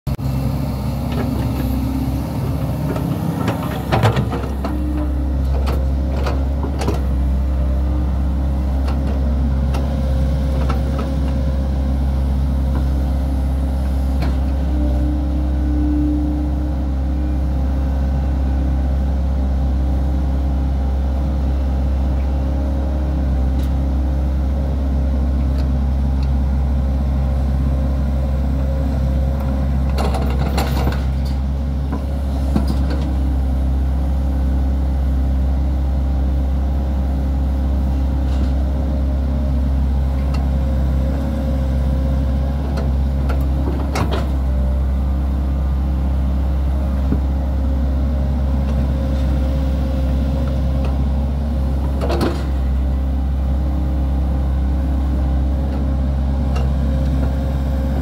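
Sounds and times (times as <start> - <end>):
excavator diesel engine running: 0.1 - 58.0
excavator clatters: 2.8 - 7.1, 29.8 - 31.4.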